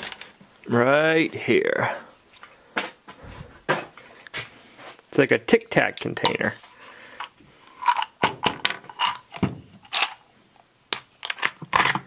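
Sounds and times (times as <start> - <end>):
bits rattling: 7.2 - 10.2.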